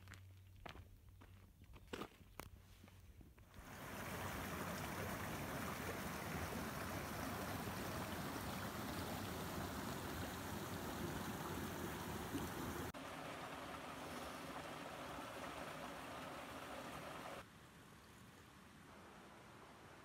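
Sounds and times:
creek running over rocks: 0:03.6 - 0:17.5.

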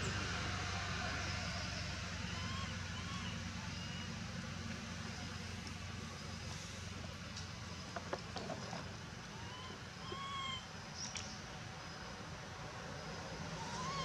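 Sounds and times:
animal calls rising and falling: 0:02.2 - 0:04.1, 0:09.4 - 0:10.7, 0:13.6 - 0:14.0.

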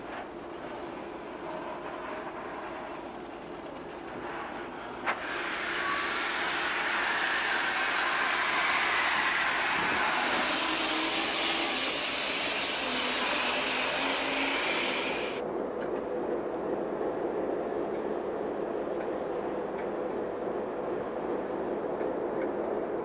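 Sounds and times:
steam hissing from locomotive: 0:00.0 - 0:15.4.

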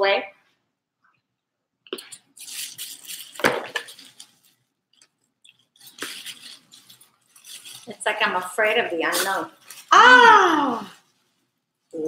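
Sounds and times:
knife scraping and crunching shell: 0:02.0 - 0:07.9.

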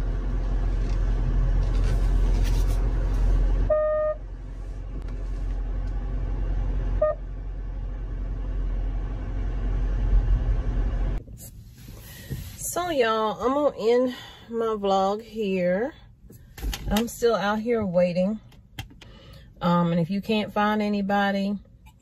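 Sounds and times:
car engine low rumble: 0:00.0 - 0:22.0
short pitched beeps: 0:03.7 - 0:04.2.

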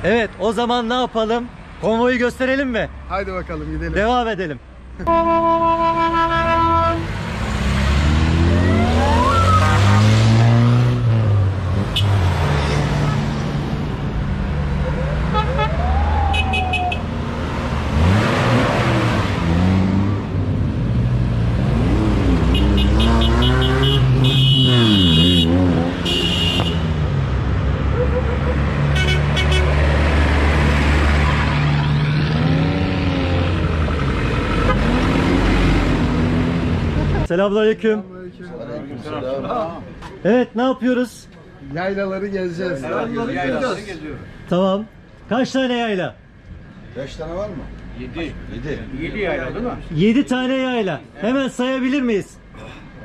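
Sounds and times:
vehicle engine accelerating: 0:07.1 - 0:16.3, 0:17.0 - 0:26.0, 0:26.9 - 0:37.3.

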